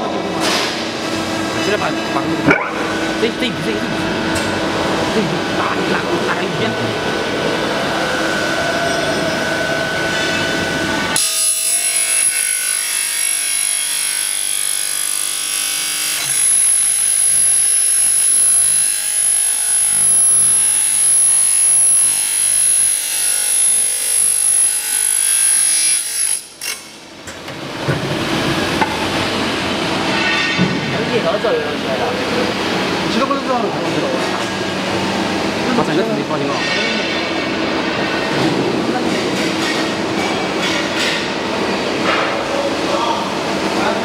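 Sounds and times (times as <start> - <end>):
machine grinding and rubbing: 0.4 - 26.9
thin high whine: 4.7 - 11.2.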